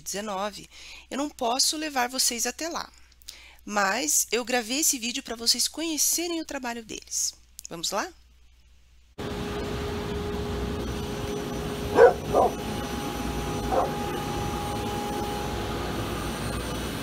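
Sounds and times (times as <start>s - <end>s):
steady hum: 9.1s - 17.0s
dog barking: 11.9s - 12.6s, 13.6s - 14.2s.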